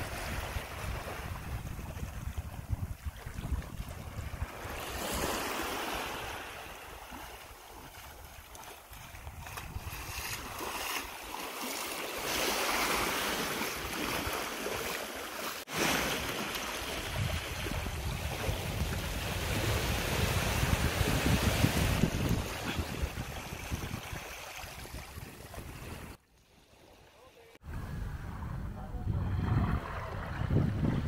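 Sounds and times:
wind rumbling on microphone: 0.0 - 5.2, 8.0 - 10.6, 16.8 - 26.2, 27.6 - 31.0
waves washing on sandy shore: 0.0 - 26.2.

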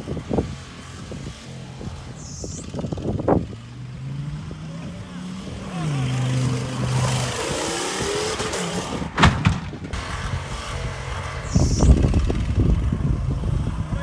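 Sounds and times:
truck engine revving: 0.0 - 14.0
loud bang: 9.1 - 10.0.

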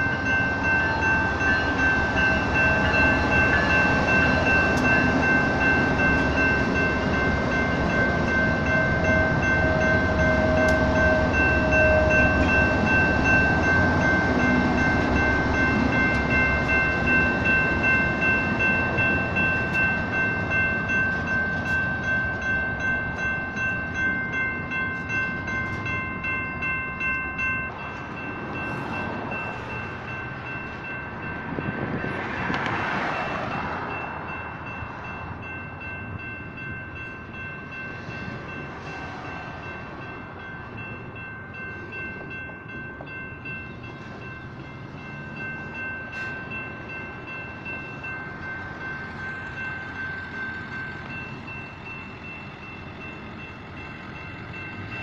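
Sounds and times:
freight train rumbling past: 0.0 - 55.0
railroad crossing bells ringing: 0.0 - 55.0.

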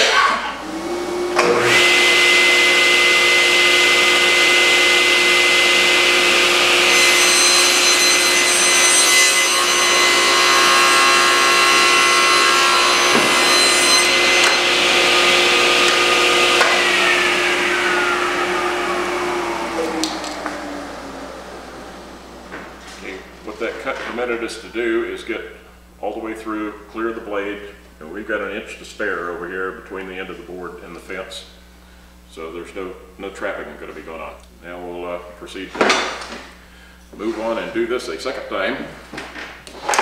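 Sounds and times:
table saw whining: 0.0 - 24.8
saw blade cutting board: 6.6 - 24.1.

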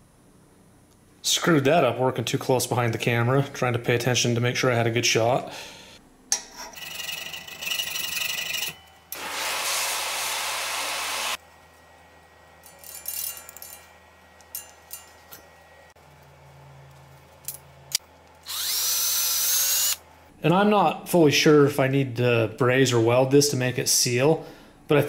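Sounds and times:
metal blade scraping metal: 6.3 - 8.9, 12.6 - 15.5.

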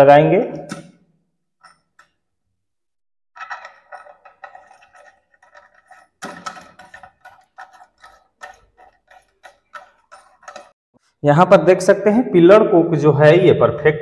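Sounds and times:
nut clicking and rattling: 3.4 - 10.7.

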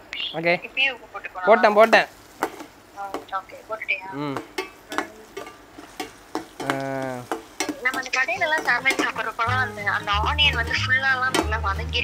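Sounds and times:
onions sizzling in oil: 0.0 - 12.0
metal spatula scraping a pan: 4.4 - 11.7.

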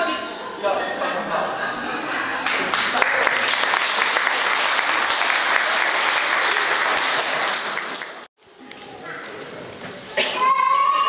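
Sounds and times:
audience applauding: 2.4 - 8.3.

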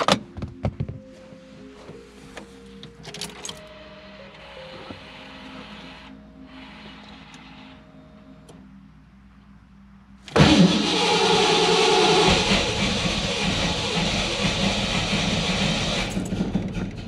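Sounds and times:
faint hum: 0.0 - 15.2
starter motor cranking engine: 10.3 - 17.0.

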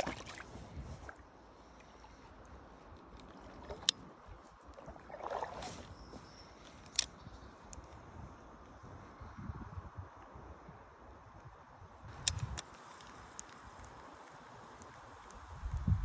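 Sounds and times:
flowing river water: 0.0 - 7.1.

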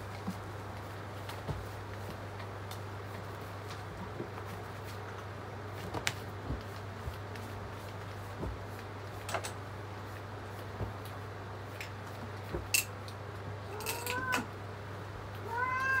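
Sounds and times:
steady low hum: 0.0 - 16.0
cat meowing: 13.7 - 14.5, 15.4 - 16.0.

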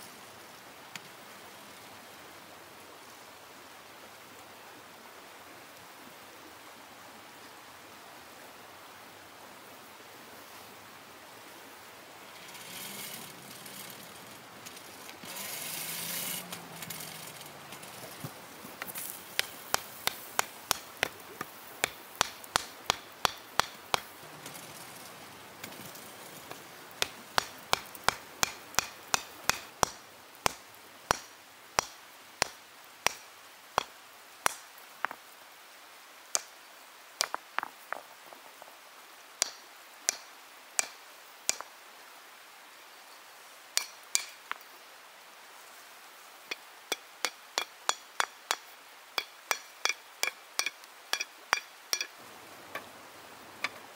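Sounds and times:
stone hammer striking iron: 21.8 - 24.1, 27.0 - 33.2, 39.4 - 41.7, 43.8 - 44.4, 46.5 - 52.1.

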